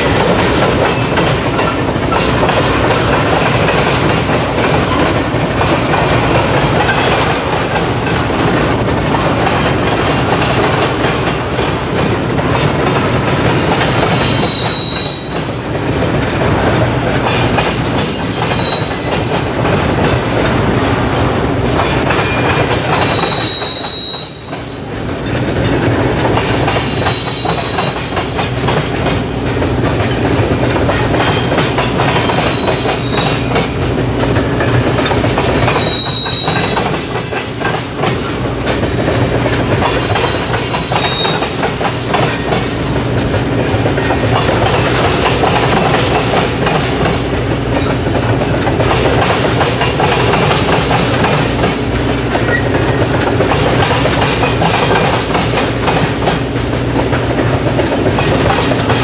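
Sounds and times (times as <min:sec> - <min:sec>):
clicking over rail joints: 0:00.0 - 0:59.0
freight train cars rolling: 0:00.0 - 0:59.0
high-pitched wheel squeals: 0:10.6 - 0:12.0, 0:14.2 - 0:15.5, 0:18.0 - 0:19.1, 0:22.2 - 0:24.8, 0:26.5 - 0:28.1, 0:35.7 - 0:37.8, 0:40.0 - 0:41.6.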